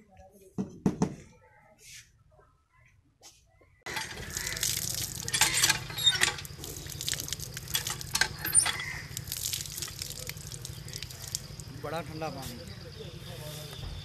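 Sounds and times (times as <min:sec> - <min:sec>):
water splashing on concrete: 0:03.9 - 0:12.0.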